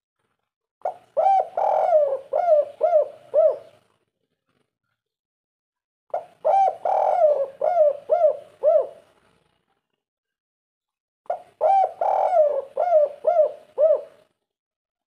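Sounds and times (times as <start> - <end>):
dove cooing: 0.8 - 3.8, 6.1 - 9.1, 11.3 - 14.3.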